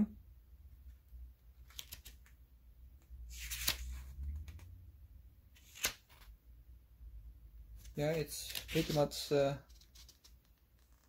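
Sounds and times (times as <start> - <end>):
paper pages turning: 1.5 - 2.4, 3.3 - 4.7, 5.5 - 6.3, 7.8 - 11.0.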